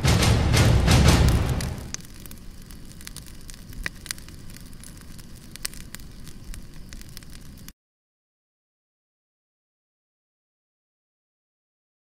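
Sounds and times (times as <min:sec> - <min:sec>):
fire crackling: 0:00.0 - 0:07.8.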